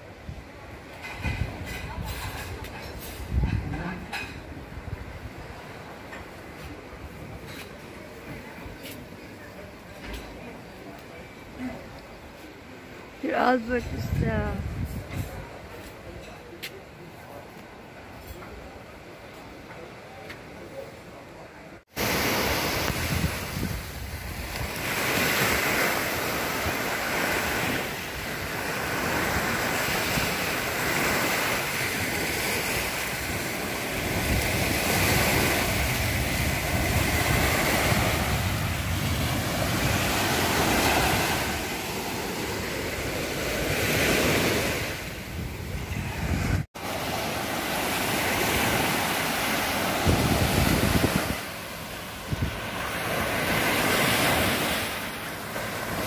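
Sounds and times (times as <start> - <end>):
wind buffeting microphone: 1.2 - 5.6, 13.8 - 15.6, 22.5 - 26.9, 32.8 - 41.8, 42.5 - 46.7, 47.6 - 53.4
small waves breaking on sand: 21.9 - 56.0.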